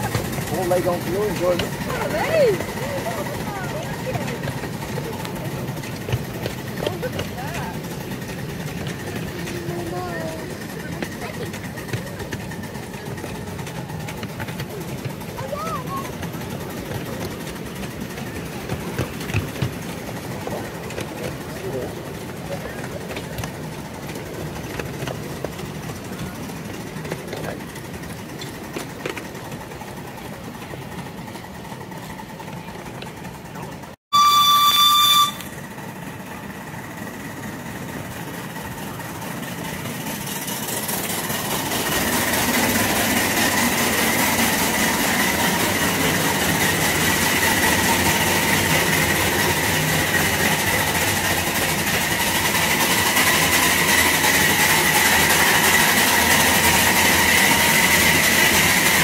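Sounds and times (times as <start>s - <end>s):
miniature steam train running: 0.0s - 59.0s
high wheel squeal: 34.1s - 35.6s
train whistle blast: 34.1s - 35.6s.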